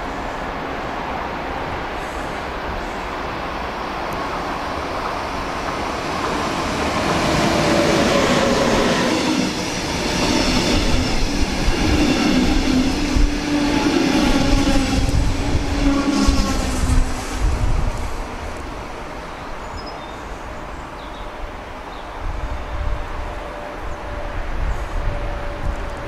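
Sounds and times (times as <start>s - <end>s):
electric locomotive whine: 0.0s - 26.0s
train wheel and running noise: 22.3s - 26.0s.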